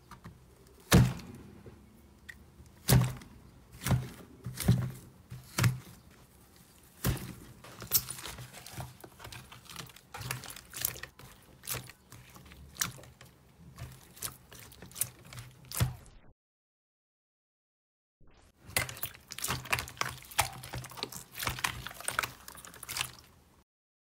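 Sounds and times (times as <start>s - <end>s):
frozen slime crackling and popping: 6.9s - 16.1s, 18.6s - 23.4s.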